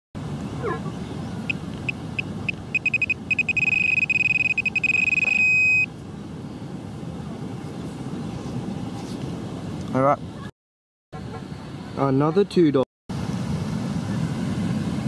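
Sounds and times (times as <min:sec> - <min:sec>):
metal detector beeping: 0:01.5 - 0:05.9.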